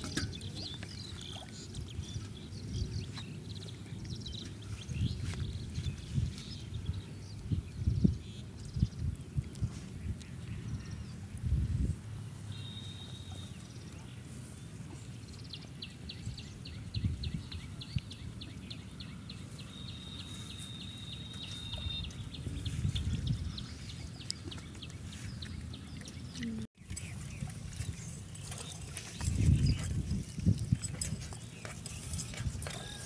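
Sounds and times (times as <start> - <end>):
bird chipping: 15.3 - 28.7
bird high whistles: 19.7 - 22.2.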